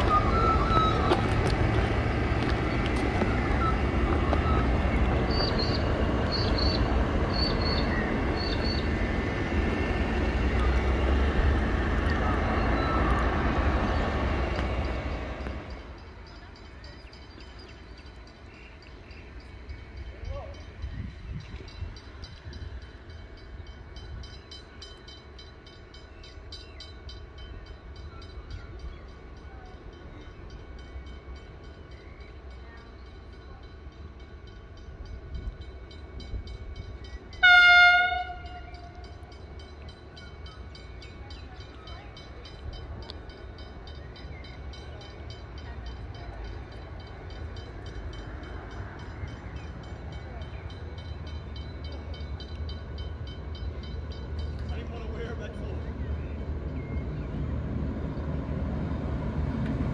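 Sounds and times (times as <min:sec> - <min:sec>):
low train rumble: 0:00.0 - 0:59.9
train horn blast: 0:37.4 - 0:39.2.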